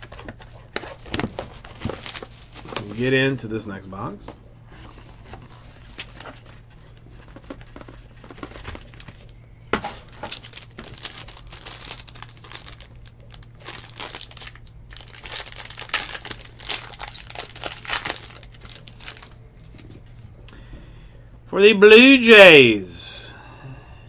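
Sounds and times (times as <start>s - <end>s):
foil wrapper crinkling: 0.0s - 3.2s, 5.6s - 20.2s
wrapper snapping: 10.2s - 19.7s
low hum: 22.9s - 24.0s.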